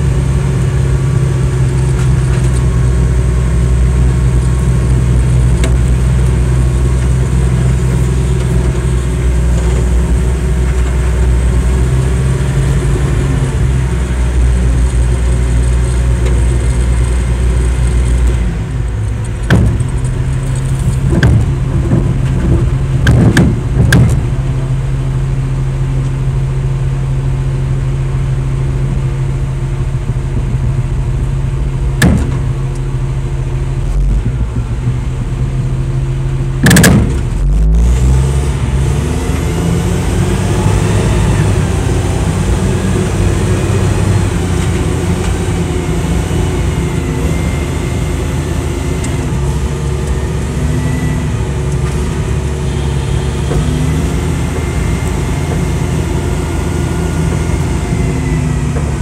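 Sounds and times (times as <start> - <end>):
diesel truck engine under load: 0.0 - 59.0
rising engine whine: 0.0 - 59.0
loud bang: 31.9 - 32.7, 36.6 - 37.6.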